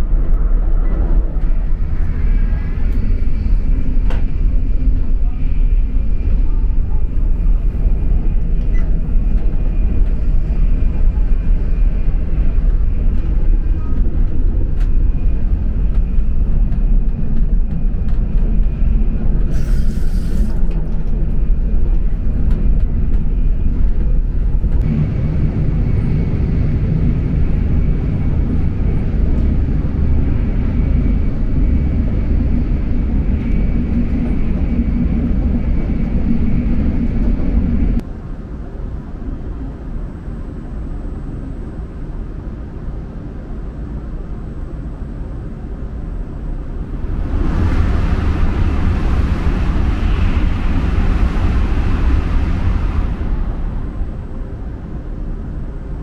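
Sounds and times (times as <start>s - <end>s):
train running rumble: 0.0s - 56.0s
brief hiss: 19.5s - 20.6s.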